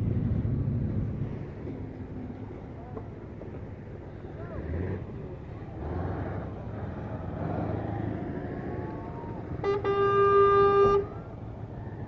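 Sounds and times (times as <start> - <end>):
vehicle engine rumbling: 0.0 - 12.0
horn blast: 9.6 - 11.2.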